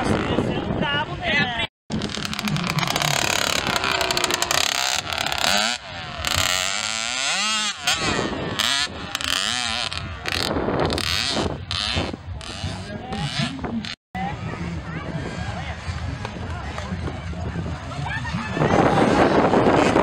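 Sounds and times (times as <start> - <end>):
two-stroke motorbike engine revving: 1.9 - 14.0.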